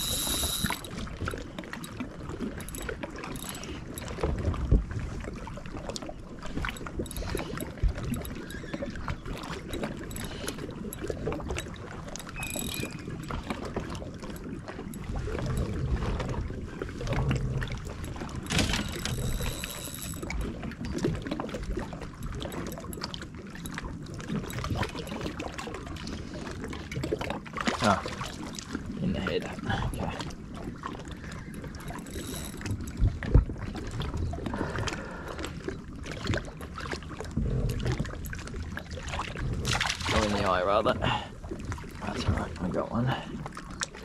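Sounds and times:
fishing rods knocking and clicking: 0.0 - 1.1, 1.8 - 4.4, 6.7 - 8.5, 9.6 - 15.7, 18.4 - 20.6, 31.6 - 33.4
fishing reel whir: 0.0 - 1.2, 2.5 - 4.2, 6.7 - 13.7, 18.4 - 20.6, 31.5 - 33.0
water lapping against hull: 0.0 - 44.0.

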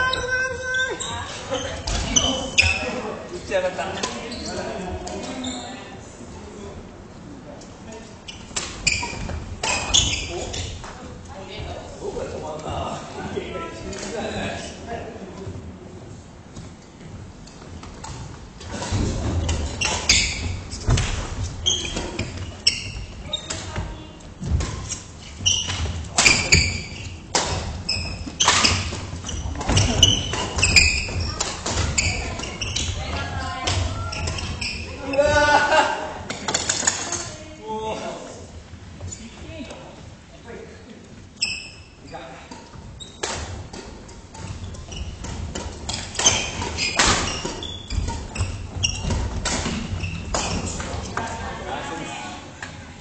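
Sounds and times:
court shoes squeaking: 0.0 - 3.2, 4.0 - 5.9, 8.2 - 11.0, 16.5 - 35.5, 39.0 - 39.7, 41.3 - 51.4.

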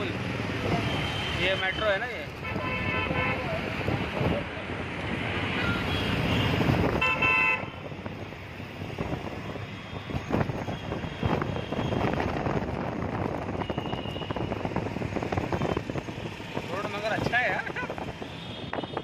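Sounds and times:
engine and road noise: 0.0 - 19.0
vehicle horn honking: 2.4 - 3.4, 5.6 - 7.8.

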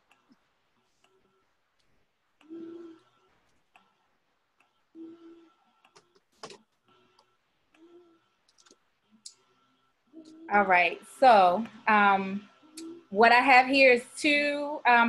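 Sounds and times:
computer mouse clicks: 5.8 - 9.4.

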